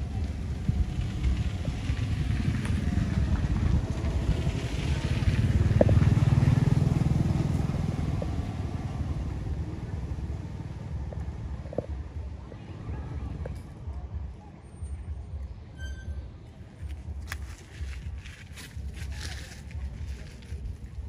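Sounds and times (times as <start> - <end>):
motor vehicle engine passing: 0.0 - 11.6.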